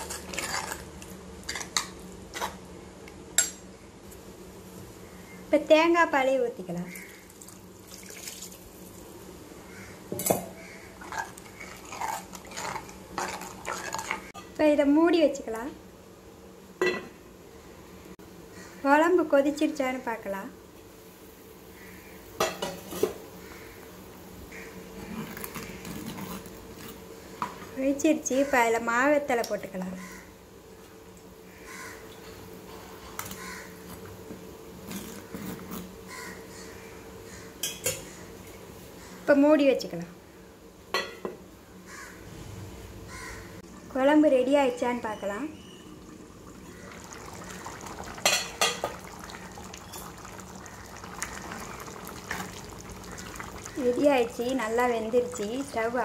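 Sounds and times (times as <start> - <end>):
ladle scraping pot: 0.0 - 0.9, 11.0 - 14.5
ladle stirring thick curry: 11.0 - 14.3.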